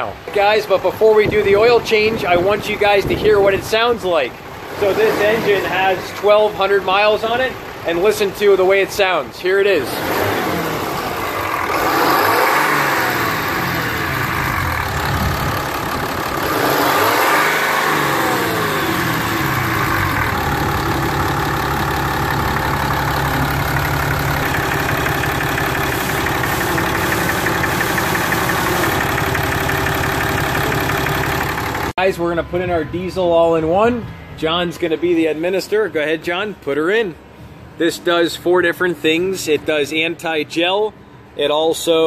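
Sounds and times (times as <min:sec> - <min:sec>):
diesel engine running: 0:00.0 - 0:33.2.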